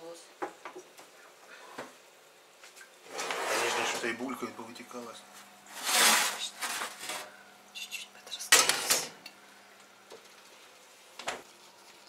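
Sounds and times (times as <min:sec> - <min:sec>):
metal baking tray clattering: 0:08.5 - 0:09.2.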